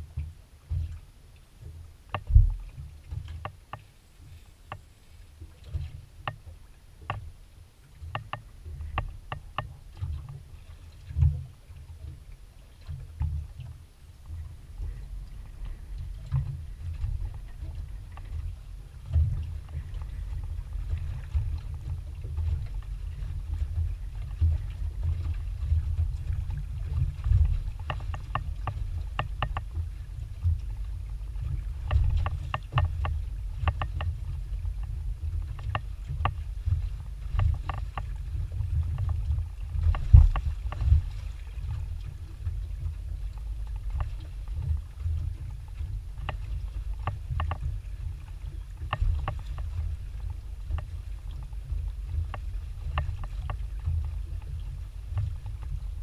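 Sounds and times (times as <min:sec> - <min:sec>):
wind rumble on microphone: 0:00.0 - 0:56.0
light ticks and taps: 0:00.2 - 0:07.3, 0:08.0 - 0:10.4, 0:26.2 - 0:38.2, 0:38.8 - 0:41.2, 0:43.3 - 0:55.7.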